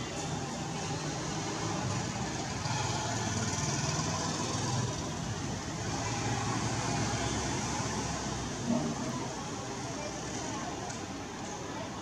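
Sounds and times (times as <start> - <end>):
distant road traffic rumble: 0.0 - 12.0.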